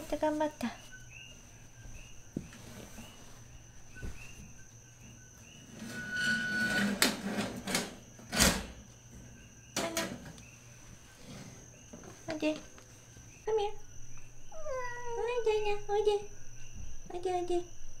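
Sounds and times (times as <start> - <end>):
faint insect chirps: 0.0 - 18.0
soft rustle: 0.1 - 4.7.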